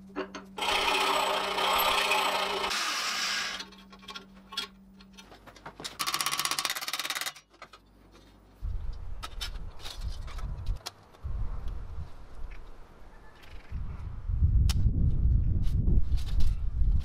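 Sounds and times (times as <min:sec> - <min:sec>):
buzzing rasp of metalwork: 0:00.6 - 0:03.8
wind buffeting microphone: 0:08.6 - 0:12.4, 0:13.7 - 0:17.0.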